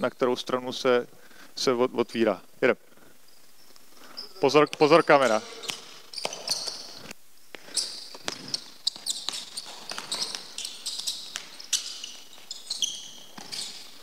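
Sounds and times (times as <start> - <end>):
sneakers squeaking on floor: 3.3 - 14.0
basketball dribbling on hardwood: 8.1 - 11.8.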